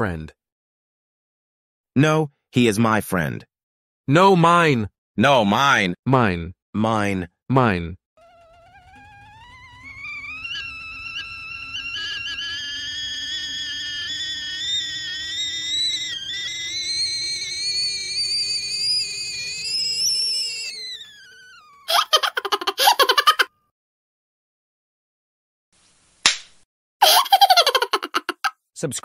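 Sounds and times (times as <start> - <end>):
rapid sputtering rattle: 8.2 - 21.9
rising whistle-like tone: 8.2 - 21.9.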